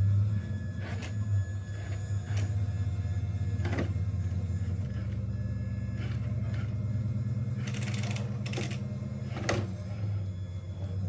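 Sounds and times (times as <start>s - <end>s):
toy truck electric motor hum: 0.0s - 11.0s
tyres and plastic scraping: 3.6s - 4.0s.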